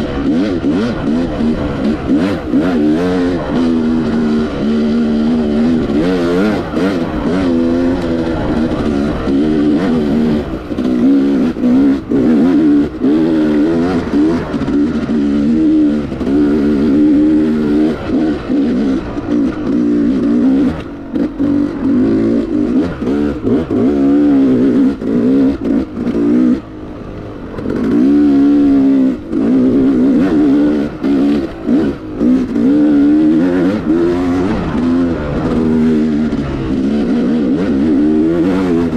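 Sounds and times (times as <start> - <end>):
two-stroke engine revving: 0.0 - 38.9.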